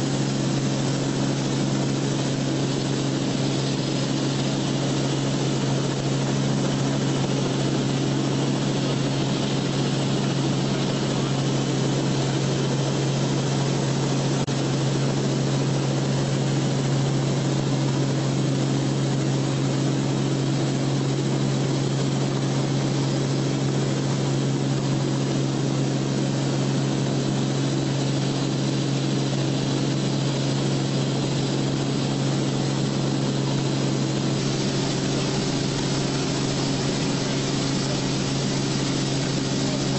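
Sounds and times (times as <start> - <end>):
light aircraft engine drone: 0.0 - 39.9
rushing air: 31.5 - 39.9.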